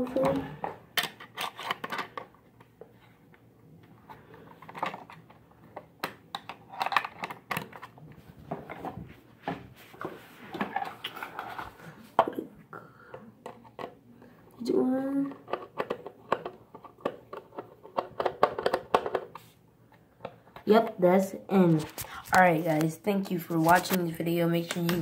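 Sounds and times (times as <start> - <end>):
plastic parts clicking: 0.6 - 2.3, 4.5 - 7.9, 15.3 - 19.4.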